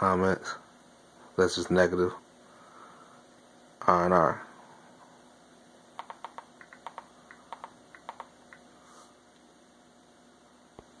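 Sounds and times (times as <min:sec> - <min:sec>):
button clicks: 0:06.0 - 0:08.6.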